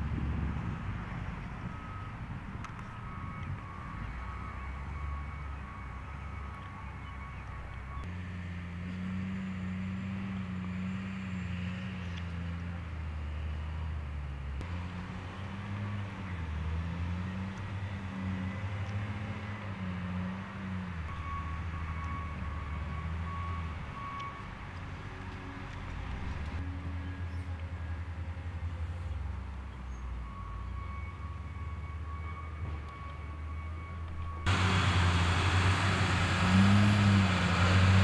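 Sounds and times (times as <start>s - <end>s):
reversing alarm beeping: 1.6s - 8.1s, 21.1s - 24.6s, 30.2s - 37.0s
roller diesel engine running: 25.4s - 38.0s.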